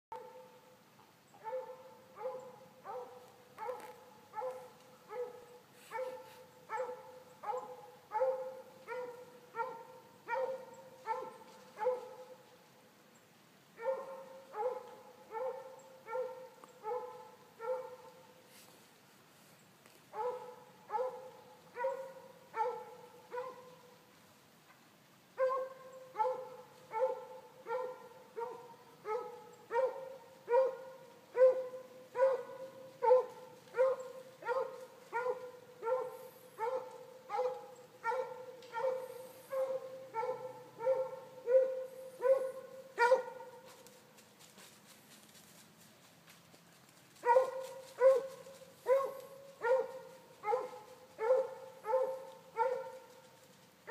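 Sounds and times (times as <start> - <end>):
hound baying: 1.4 - 12.3, 20.2 - 23.8, 25.4 - 43.6, 47.2 - 53.2.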